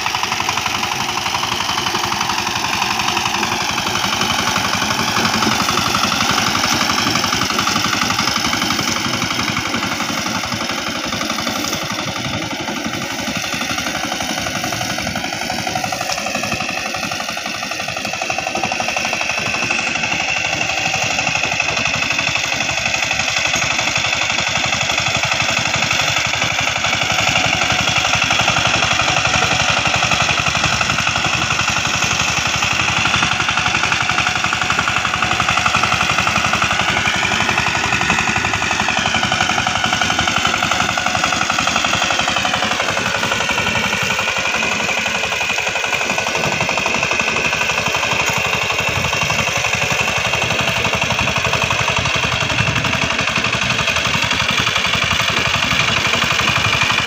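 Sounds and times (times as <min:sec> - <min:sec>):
diesel engine chugging: 0:00.0 - 0:57.0.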